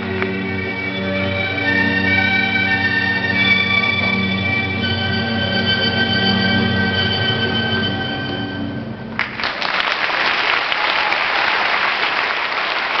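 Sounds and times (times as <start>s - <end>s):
music held chord: 0.0s - 9.1s
audience applause: 9.2s - 13.0s.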